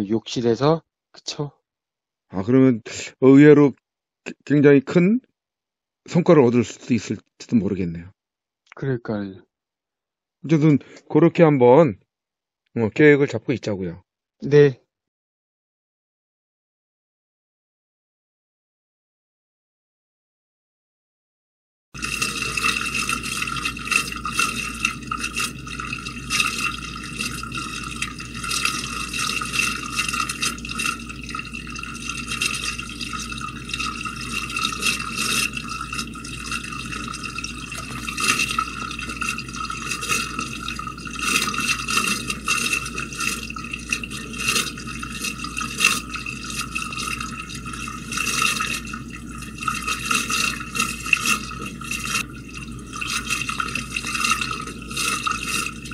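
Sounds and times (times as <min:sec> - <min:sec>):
water drips: 0:22.0 - 0:55.9
water sloshing in drain: 0:22.0 - 0:55.9.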